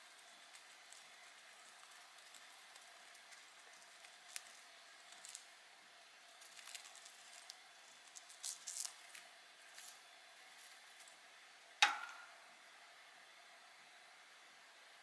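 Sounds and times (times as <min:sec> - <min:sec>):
sharp knock: 0:11.8 - 0:12.3.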